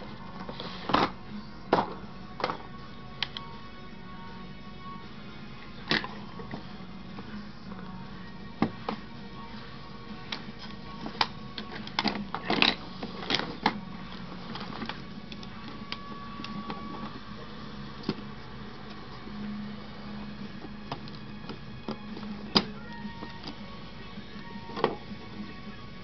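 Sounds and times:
low steady hum: 0.0 - 26.0
plastic parts clicking and rattling: 11.2 - 17.1.

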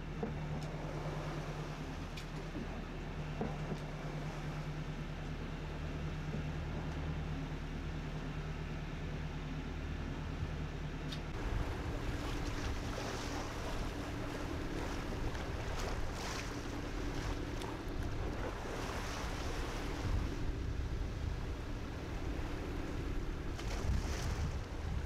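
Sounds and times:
boat engine droning: 0.0 - 25.0
water splashing along hull: 0.0 - 25.0
wind buffeting microphone: 11.3 - 25.0.

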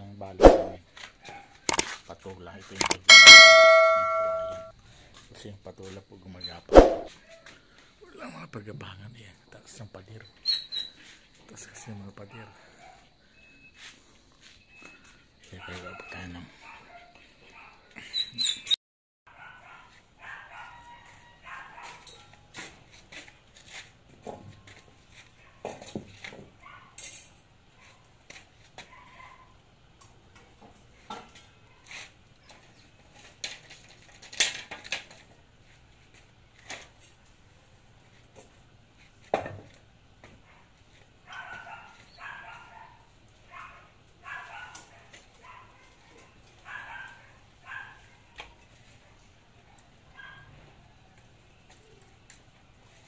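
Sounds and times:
dog barking: 0.4 - 1.8, 11.7 - 13.1, 15.4 - 17.9, 19.3 - 22.4, 25.4 - 25.8, 26.6 - 27.0, 28.8 - 29.6, 40.4 - 50.6
bamboo poles and chair clattering: 30.5 - 37.3.

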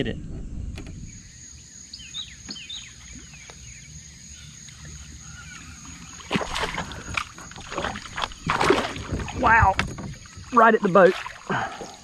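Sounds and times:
faint chirping: 0.0 - 8.5
water splashing around a boat: 4.7 - 12.0.

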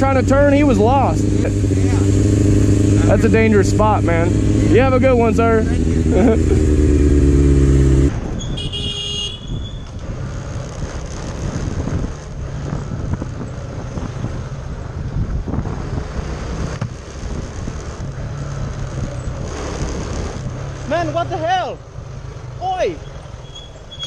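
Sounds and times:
motorbike engine running: 0.0 - 9.8
road noise: 0.0 - 24.0
motorbike brakes squealing: 8.3 - 10.0, 22.9 - 24.0.

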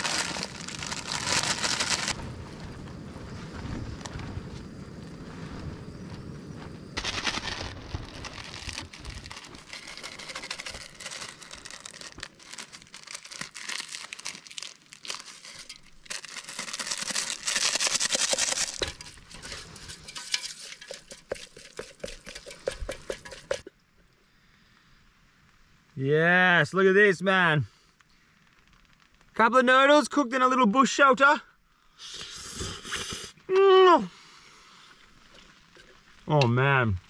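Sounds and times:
plastic sachet crinkling: 0.0 - 2.2, 7.0 - 19.8
utensil scraping metal pot: 18.0 - 23.7.

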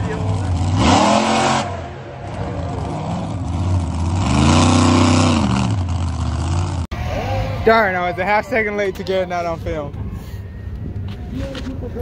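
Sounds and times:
monster truck engine revving: 0.0 - 6.9.

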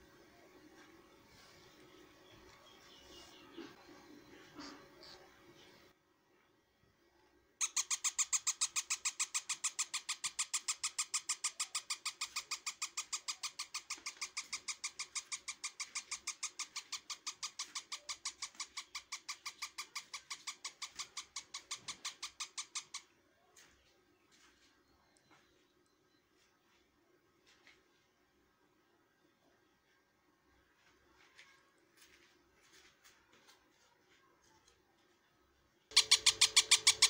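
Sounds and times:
parrot chick begging chirps: 7.6 - 23.1, 35.9 - 37.0.

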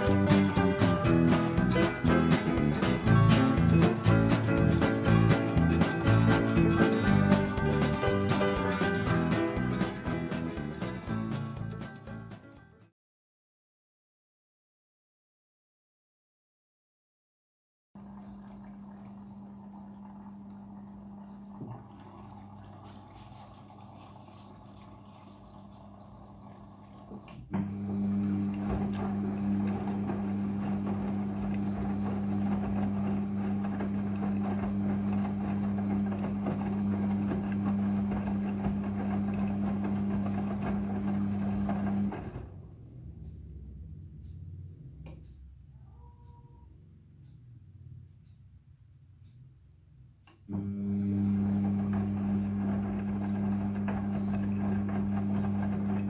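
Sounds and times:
washing machine hum: 0.0 - 11.9, 18.0 - 48.4, 50.2 - 56.0
water running: 18.0 - 42.5, 50.6 - 56.0
drum tumbling wet clothes: 21.2 - 27.3.

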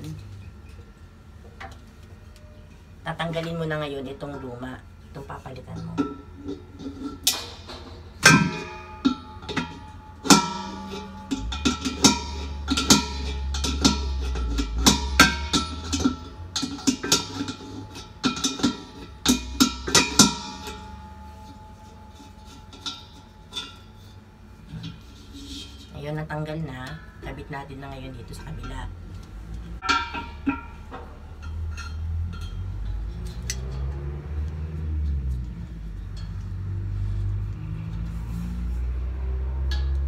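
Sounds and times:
low bass: 28.2 - 40.0.

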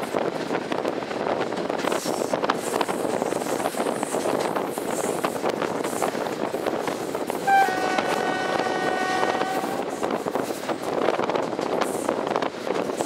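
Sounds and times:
train running noise: 0.0 - 13.0
train horn blast: 7.4 - 9.9.

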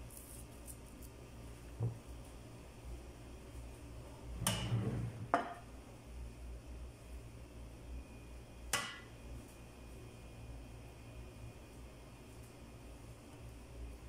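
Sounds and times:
faint room hum: 0.0 - 14.0
kitchenware thud on wooden table: 4.4 - 5.6.

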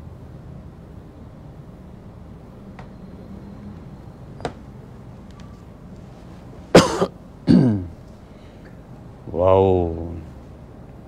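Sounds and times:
low steady room hum: 0.0 - 11.0
man coughing: 6.7 - 8.0.

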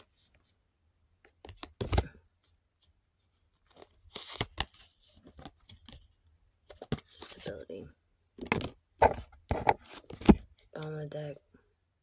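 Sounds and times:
cards rustling and flicking: 1.3 - 2.3, 3.4 - 7.8, 8.4 - 11.1.

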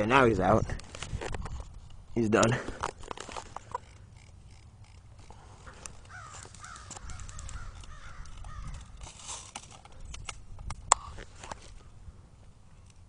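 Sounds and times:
harsh cawing calls: 5.6 - 9.0.

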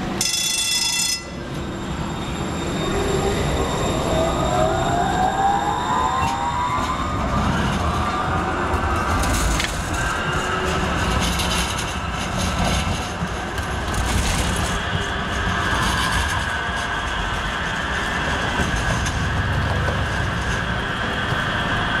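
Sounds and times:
light-rail train rumbling past: 0.0 - 22.0.

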